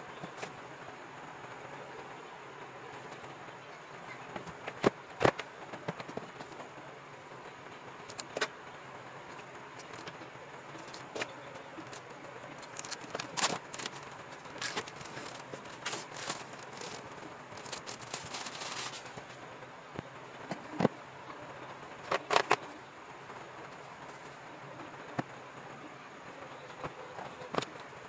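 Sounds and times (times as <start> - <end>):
plastic wrap crinkling: 10.8 - 19.3.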